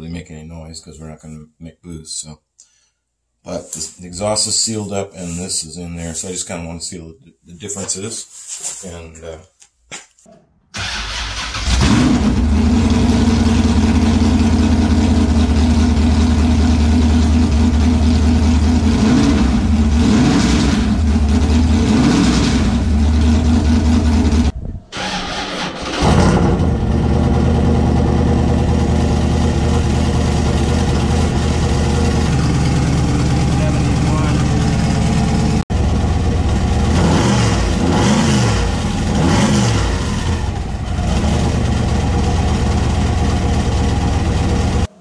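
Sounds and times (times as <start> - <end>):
straight-pipe car engine revving: 11.4 - 24.5, 26.0 - 43.5.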